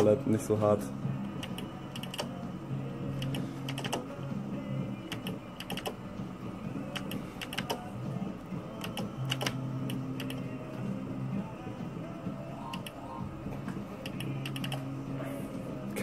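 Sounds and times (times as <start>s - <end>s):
slot machine clicks: 5.2s - 6.0s, 14.0s - 14.8s.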